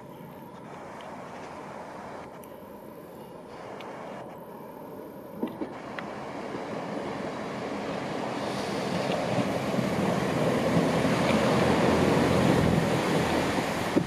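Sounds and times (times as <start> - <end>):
diesel train engines: 0.0 - 14.0
train wheels on rails: 5.4 - 14.0.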